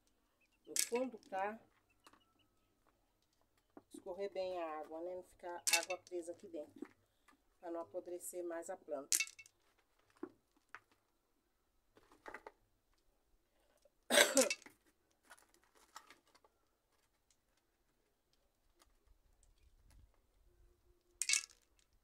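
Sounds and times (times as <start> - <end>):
plastic pot rattling and scraping: 0.7 - 2.2, 11.9 - 12.6, 14.4 - 17.2.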